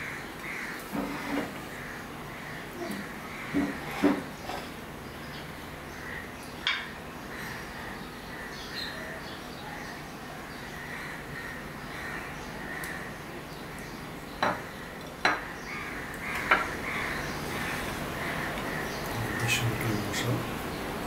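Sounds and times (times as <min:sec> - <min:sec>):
crows cawing: 0:00.0 - 0:04.1, 0:05.9 - 0:09.2, 0:10.8 - 0:13.9, 0:15.2 - 0:20.2.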